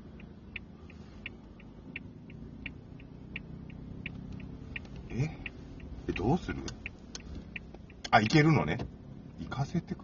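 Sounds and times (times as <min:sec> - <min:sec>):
car engine idling hum: 0:00.0 - 0:10.0
turn signal ticking: 0:00.0 - 0:10.0.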